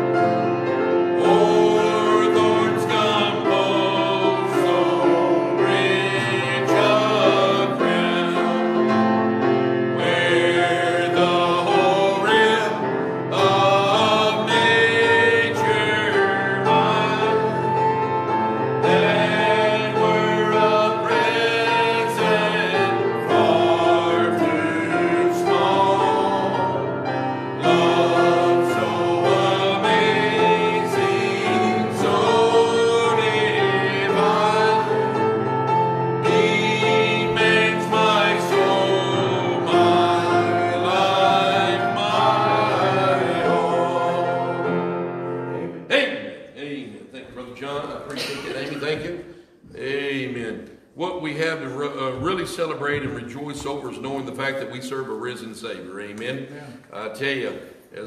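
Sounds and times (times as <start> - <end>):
musical accompaniment: 0.0 - 46.6
other voices singing: 1.0 - 9.2, 9.8 - 46.3.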